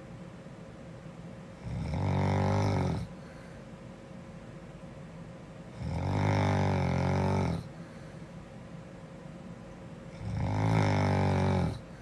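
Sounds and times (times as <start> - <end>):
girl snoring: 1.6 - 3.2, 5.8 - 7.8, 10.2 - 12.0.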